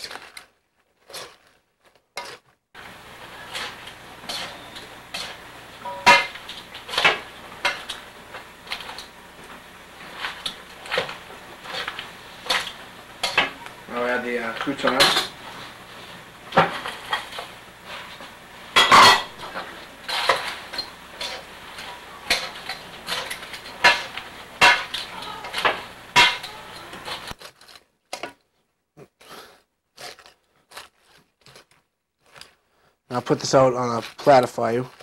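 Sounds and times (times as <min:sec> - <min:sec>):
tongs clattering: 0:03.2 - 0:13.8, 0:14.4 - 0:15.7, 0:16.5 - 0:27.8
tongs clinking in metal bowl: 0:03.4 - 0:08.0, 0:10.1 - 0:13.6, 0:18.8 - 0:27.3.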